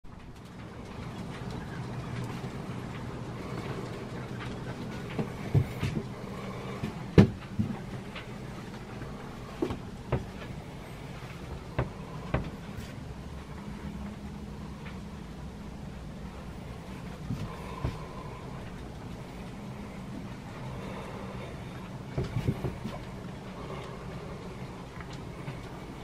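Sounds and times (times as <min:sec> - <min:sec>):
low steady hum: 0:00.0 - 0:26.0
knocks and thumps on wood: 0:05.2 - 0:06.1, 0:06.8 - 0:07.8, 0:09.6 - 0:10.4.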